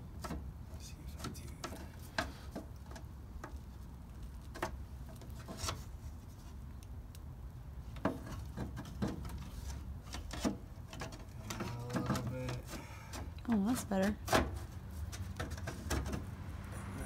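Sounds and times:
cardboard tapping and scraping: 8.0s - 16.3s.

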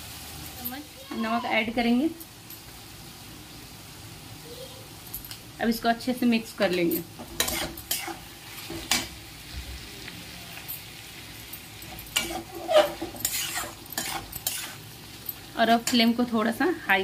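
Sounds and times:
frying sizzle: 0.0s - 17.0s
metal spatula scraping pan: 7.2s - 9.1s, 11.9s - 14.8s.

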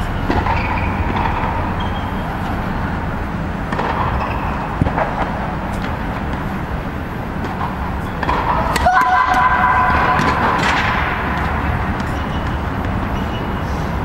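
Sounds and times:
blower fans humming: 0.0s - 14.0s.

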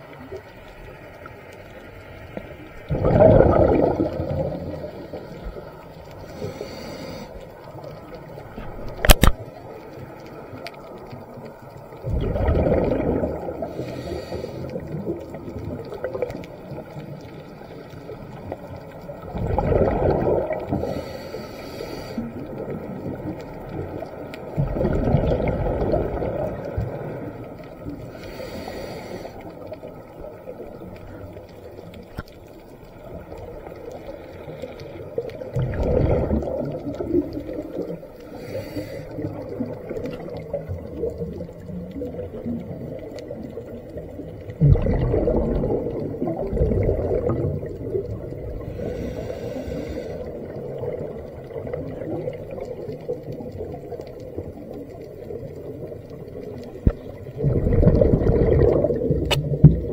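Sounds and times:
diver exhaling bubbles: 2.8s - 7.3s, 12.0s - 16.7s, 19.2s - 21.5s, 24.5s - 28.8s, 35.2s - 54.6s, 56.6s - 59.9s
regulator inhalation hiss: 6.2s - 7.5s, 13.7s - 14.8s, 20.8s - 22.3s, 28.1s - 29.5s, 38.2s - 39.2s, 48.6s - 50.4s.

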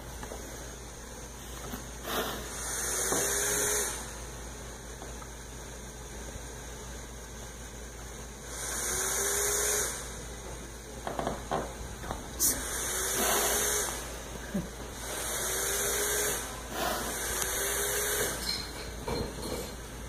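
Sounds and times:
ventilator breath hiss: 0.0s - 4.3s, 8.4s - 10.4s, 12.2s - 18.4s
ventilator low hum: 0.0s - 20.0s.

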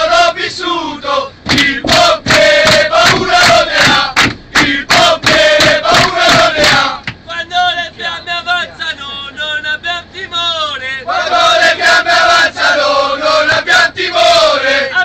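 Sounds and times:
group singing a chant: 0.0s - 7.1s, 11.1s - 15.0s
hand claps: 1.5s - 7.2s.

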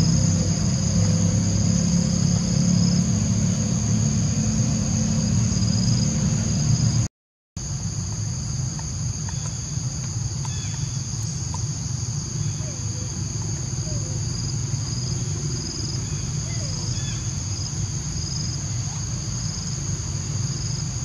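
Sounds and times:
high-pitched insect drone: 7.7s - 21.0s.

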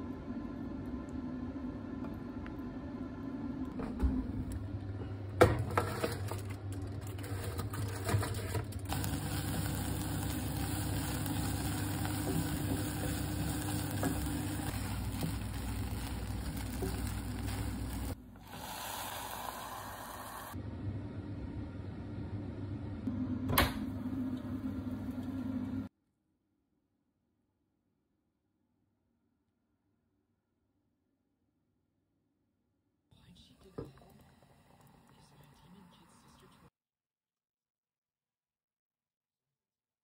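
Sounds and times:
onion sizzling in a saucepan: 8.9s - 20.6s.

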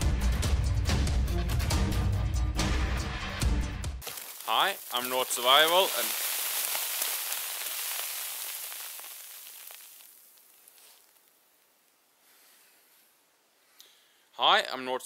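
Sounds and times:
snow falling off branches: 4.0s - 11.4s.

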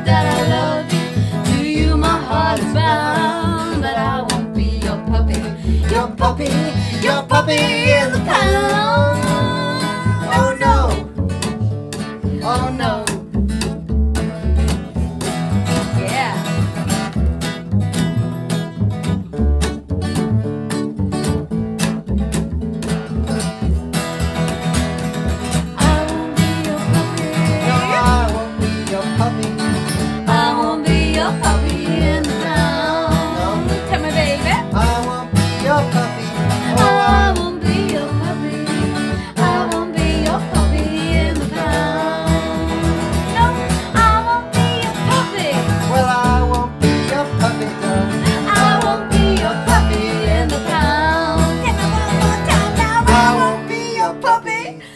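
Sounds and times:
people singing: 0.0s - 11.1s, 25.8s - 54.9s
plucked double bass: 0.0s - 54.9s
strummed acoustic guitar: 0.0s - 54.9s.

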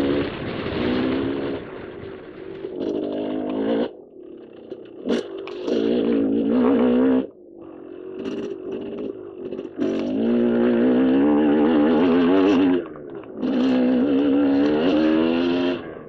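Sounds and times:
dirt bike engine: 0.0s - 16.0s.

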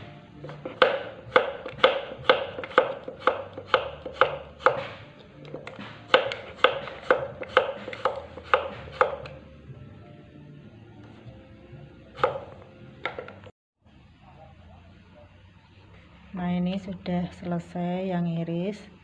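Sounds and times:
knife slicing on wooden board: 0.4s - 9.4s.

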